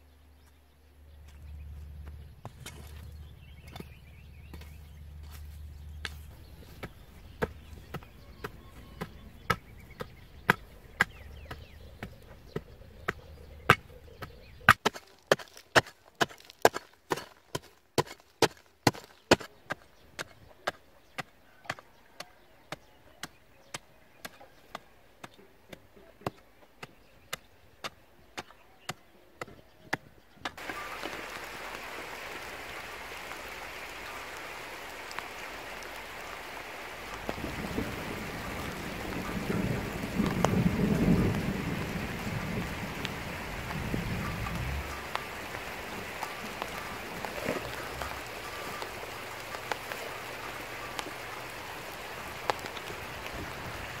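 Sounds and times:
digging tool striking dry soil: 0:02.4 - 0:21.8
steady hiss: 0:30.6 - 0:54.0.

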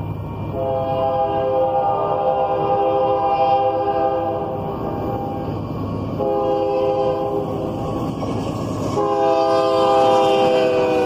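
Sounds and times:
train rumble: 0:00.0 - 0:11.0
locomotive air horn chord: 0:00.5 - 0:05.4, 0:06.2 - 0:07.7, 0:08.9 - 0:11.0.

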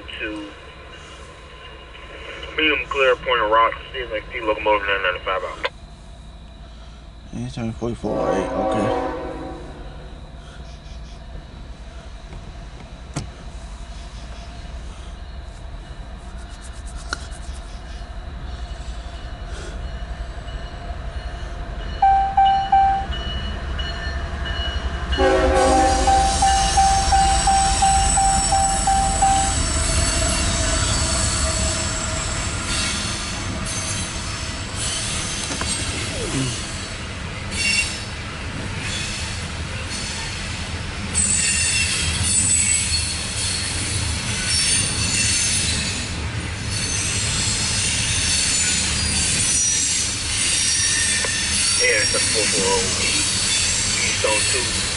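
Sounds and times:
diesel locomotive rumble: 0:00.0 - 0:54.9
train horn: 0:08.0 - 0:10.1, 0:25.2 - 0:30.7
train wheel squeal and clatter: 0:09.8 - 0:54.9.

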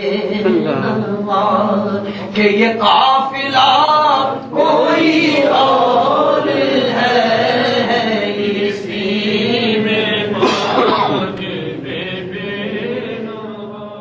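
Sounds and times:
man chanting: 0:00.4 - 0:01.2.

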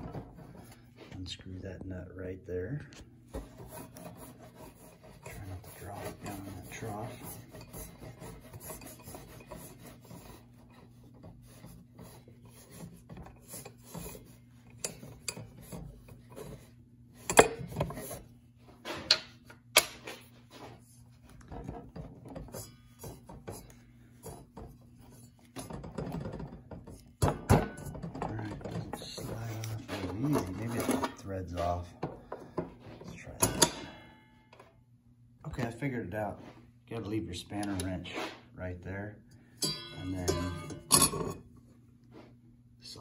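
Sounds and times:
saw blade and washer rattling: 0:03.7 - 0:10.7, 0:39.6 - 0:41.3.

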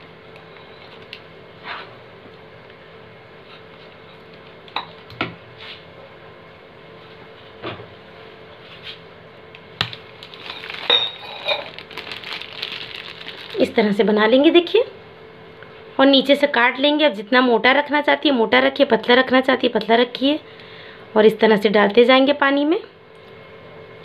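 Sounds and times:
faint steady hum: 0:00.0 - 0:24.0
plastic pouch crinkling: 0:09.9 - 0:14.0.

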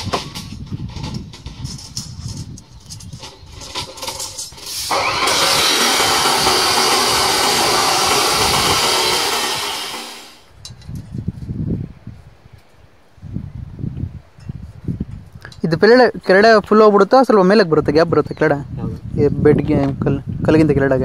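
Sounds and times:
chop saw grinding through steel: 0:03.6 - 0:10.5.

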